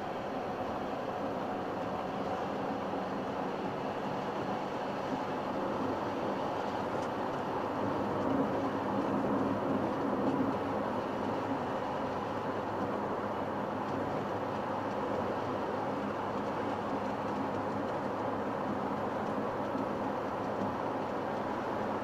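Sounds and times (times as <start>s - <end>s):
low engine hum: 0.0s - 22.0s.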